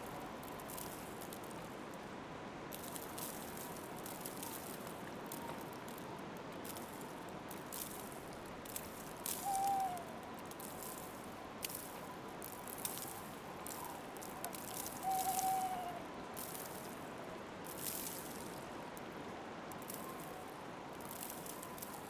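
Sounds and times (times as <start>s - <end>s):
faint crunches: 0.0s - 2.1s, 2.7s - 22.0s
night ambience hiss: 0.0s - 22.0s
owl call: 9.3s - 10.2s, 13.7s - 16.1s.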